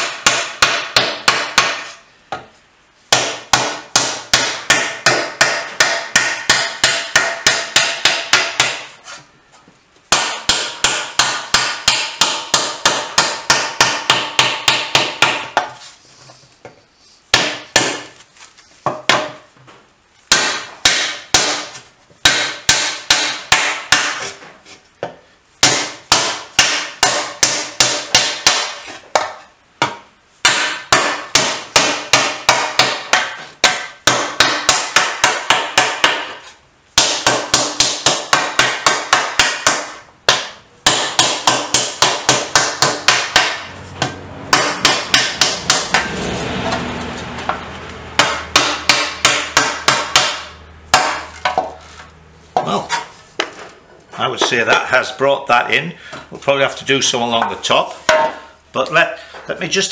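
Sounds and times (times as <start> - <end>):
mallet beating metal sheet: 3.1 - 8.8, 10.1 - 15.6, 37.0 - 51.7.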